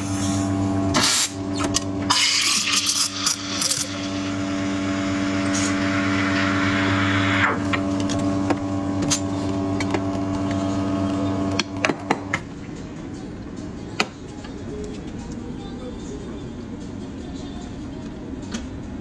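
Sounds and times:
steady hum: 0.0 - 19.0
steam wand steaming milk: 2.1 - 7.9.

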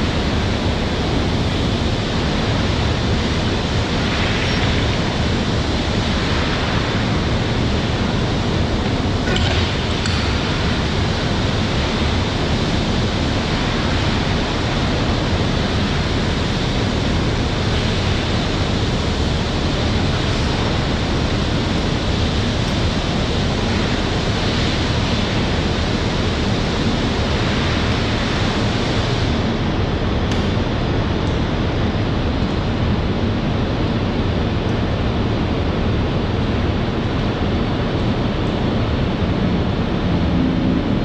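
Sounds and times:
loud rushing water spray: 0.0 - 30.2, 38.8 - 41.0
low hum: 36.4 - 41.0.

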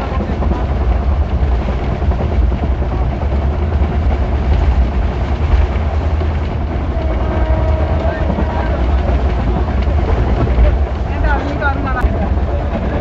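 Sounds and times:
train running noise with deep rumble: 0.0 - 13.0.

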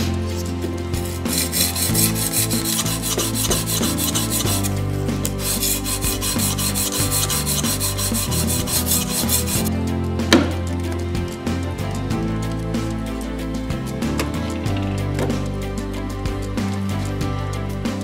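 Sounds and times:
sharpening stone scraping knife: 1.0 - 9.7.

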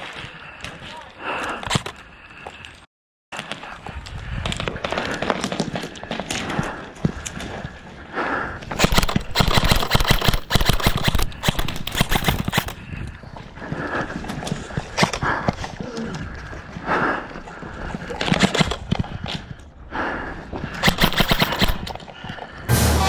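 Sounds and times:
airsoft guns firing: 8.8 - 12.8, 20.8 - 22.0.

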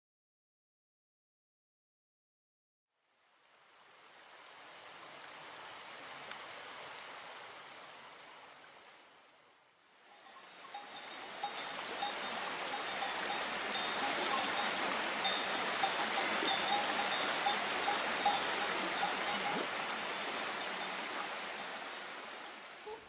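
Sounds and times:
stream rushing over rocks: 3.4 - 23.0
cow bells clinking: 10.1 - 23.0.

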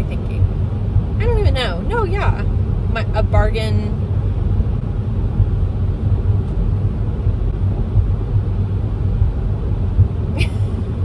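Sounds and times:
car cabin engine rumble: 0.0 - 11.0.

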